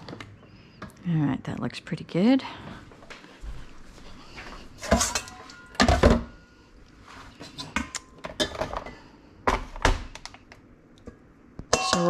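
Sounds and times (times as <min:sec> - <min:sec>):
bowls and utensils clinking: 0:04.8 - 0:06.5, 0:11.7 - 0:12.0.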